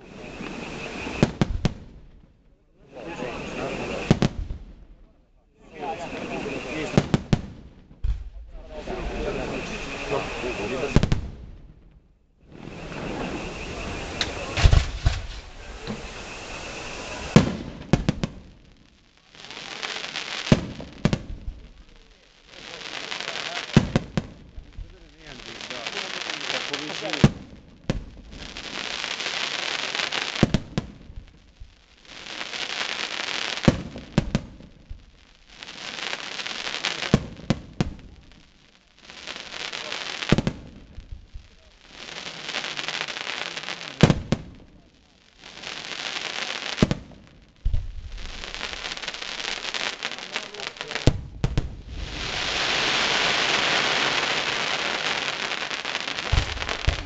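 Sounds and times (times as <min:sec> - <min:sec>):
firework stars crackling: 0:00.0 - 0:57.0
firework shells banging: 0:12.8 - 0:18.0, 0:56.2 - 0:57.0.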